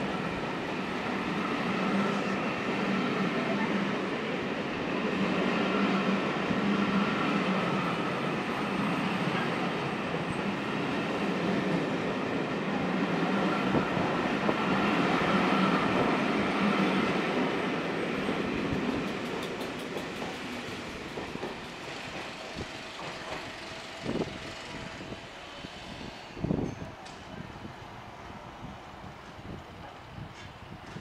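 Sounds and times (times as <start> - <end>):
train wheels on rail: 0.0 - 31.0.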